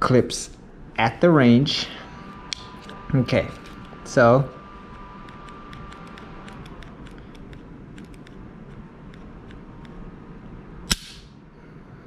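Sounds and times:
pistol trigger clicks: 0:10.9 - 0:11.3.

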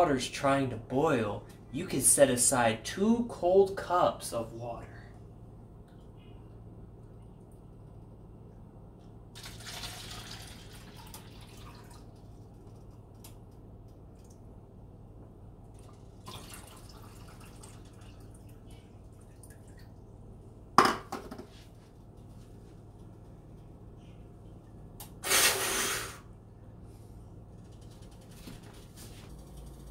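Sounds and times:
water pouring into cup: 0:09.4 - 0:12.3, 0:15.8 - 0:20.0.

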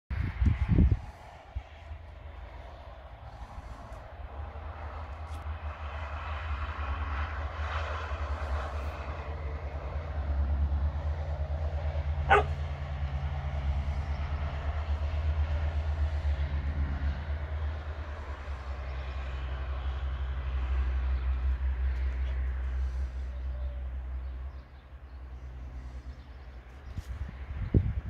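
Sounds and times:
low engine rumble: 0:00.1 - 0:28.0
dog barking: 0:12.2 - 0:12.6.

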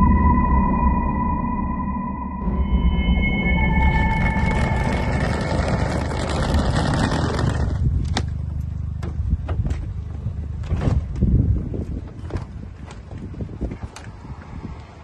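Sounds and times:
steady low rumble: 0:00.0 - 0:12.0
suitcase wheels rolling on asphalt: 0:05.1 - 0:09.0.

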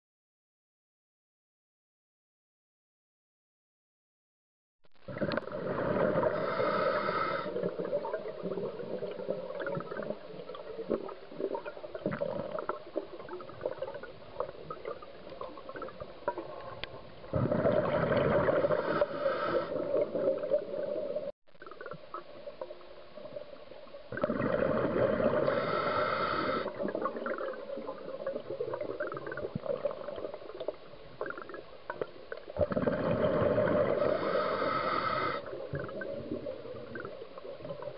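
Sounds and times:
bubbles crackling underwater: 0:05.0 - 0:37.9
diver exhaling through regulator: 0:05.1 - 0:07.7, 0:17.3 - 0:20.0, 0:24.2 - 0:26.8, 0:32.7 - 0:35.6.

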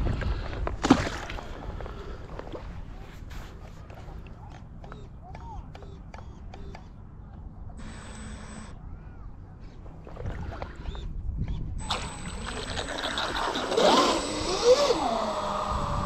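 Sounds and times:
model boat motor whining: 0:11.8 - 0:16.0.

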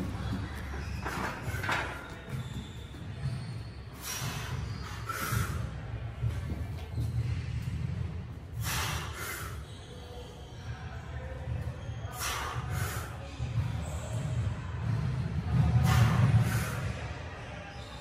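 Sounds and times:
weightlifter breathing forcefully: 0:08.5 - 0:09.6.

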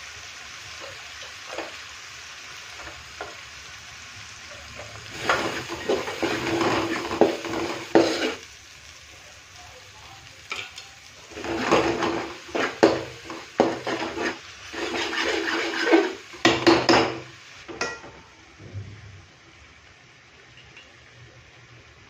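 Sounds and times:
spoon scraping in a metal pan: 0:05.1 - 0:08.4, 0:11.3 - 0:17.0.

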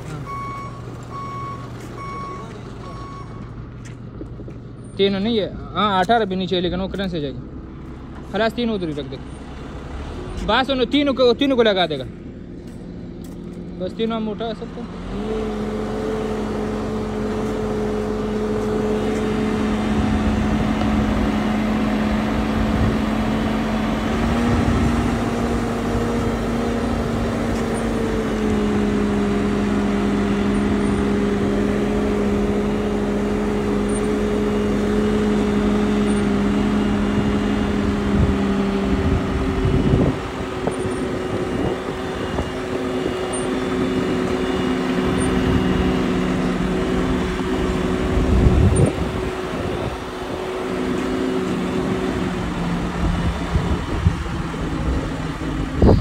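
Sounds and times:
diesel engine whining: 0:00.0 - 0:56.0.

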